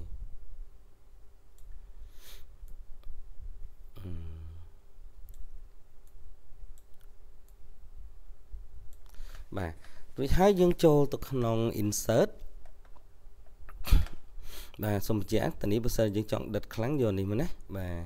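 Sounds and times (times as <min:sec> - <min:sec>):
faint steady hum: 0:00.0 - 0:18.0
computer mouse clicking: 0:01.5 - 0:01.8, 0:05.2 - 0:07.6.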